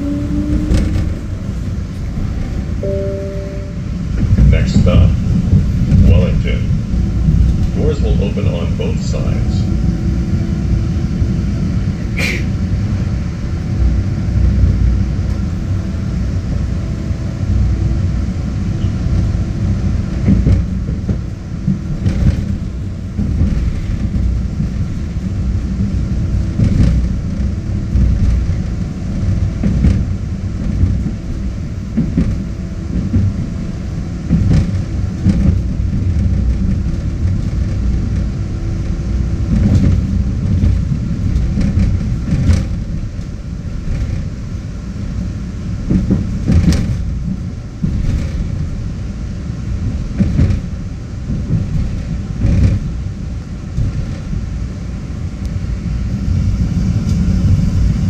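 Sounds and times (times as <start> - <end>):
train wheels rumbling on rail: 0.0 - 58.0
faint steady hum: 2.8 - 5.2.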